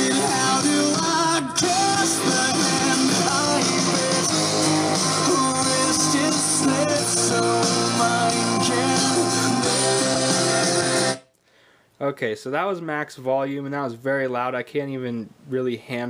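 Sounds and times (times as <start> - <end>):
loud speaker playing song: 0.0 - 11.2.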